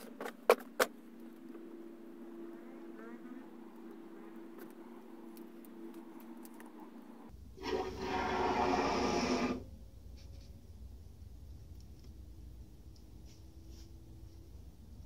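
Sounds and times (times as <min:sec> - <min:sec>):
aerosol foam can hissing: 0:07.6 - 0:09.6.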